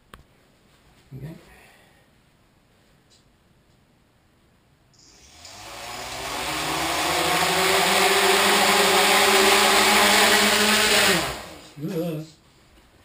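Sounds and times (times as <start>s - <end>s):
drone motors buzzing whine: 5.0s - 11.8s.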